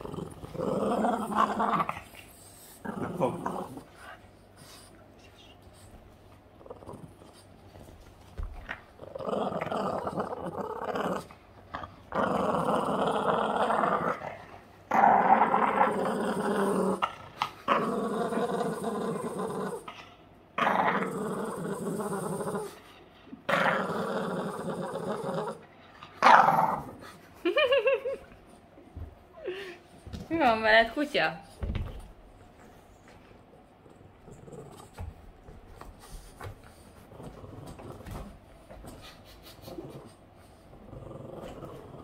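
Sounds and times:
dog growling playfully: 0:00.0 - 0:04.7, 0:06.5 - 0:07.6, 0:08.6 - 0:28.2, 0:33.7 - 0:35.3, 0:36.3 - 0:42.0.

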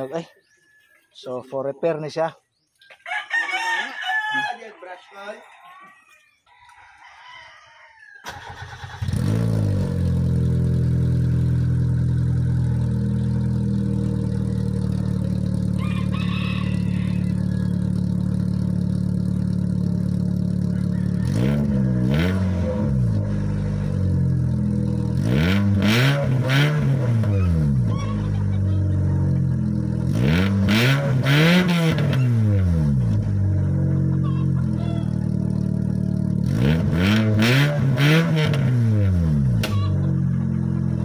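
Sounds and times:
car engine starting and idling: 0:08.2 - 0:41.0
engine revving: 0:08.3 - 0:41.0.

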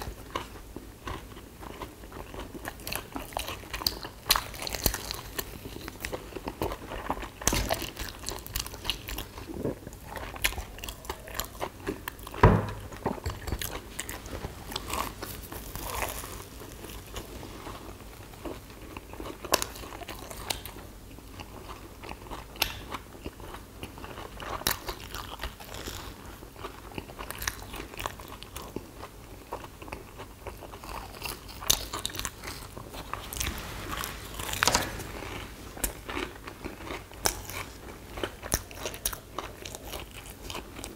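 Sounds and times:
people chewing: 0:00.0 - 0:40.9
thump: 0:12.4 - 0:12.9, 0:33.2 - 0:35.9.

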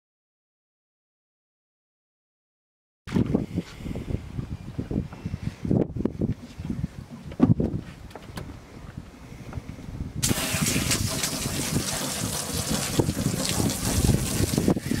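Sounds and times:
hose water spraying: 0:10.2 - 0:15.0.

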